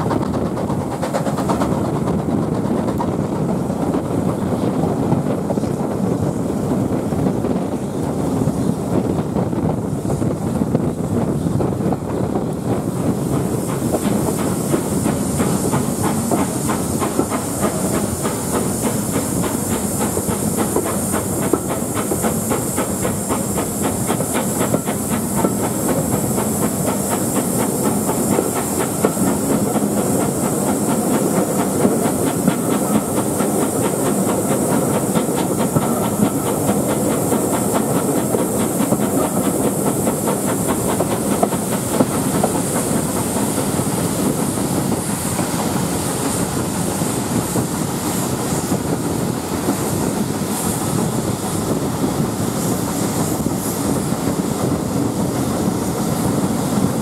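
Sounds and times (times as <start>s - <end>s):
steam hissing: 0.0s - 57.0s
train rumbling and rattling: 0.0s - 57.0s.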